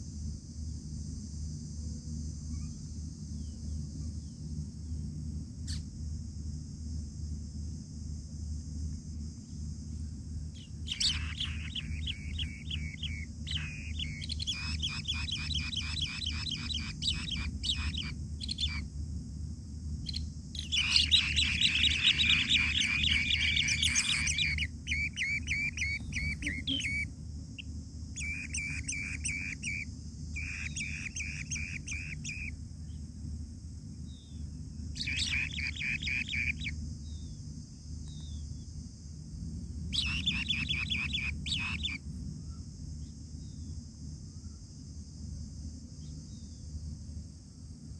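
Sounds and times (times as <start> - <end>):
steady low hum: 0.0 - 47.9
nestlings trilling chirps: 10.6 - 18.9, 20.0 - 33.0, 34.1 - 37.4, 39.8 - 42.0.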